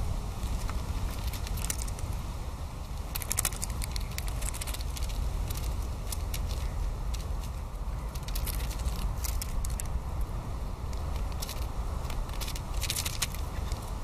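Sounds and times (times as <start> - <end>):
steady low rumble: 0.0 - 14.0
light crackles and clicks: 0.4 - 2.1, 2.9 - 10.0, 10.9 - 14.0.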